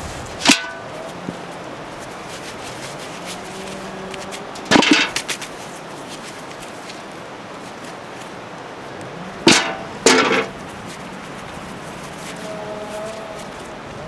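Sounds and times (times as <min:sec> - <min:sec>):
quiet outdoor background: 0:00.0 - 0:14.0
potatoes knocking in metal bucket: 0:04.6 - 0:05.3, 0:09.4 - 0:10.5.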